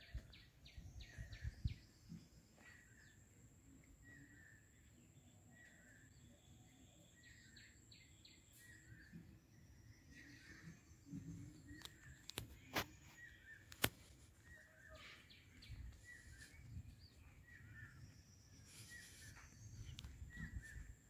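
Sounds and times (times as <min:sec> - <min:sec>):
faint outdoor ambience: 0:00.0 - 0:21.0
small birds chirping: 0:00.0 - 0:21.0
sharp clicks: 0:13.7 - 0:14.0.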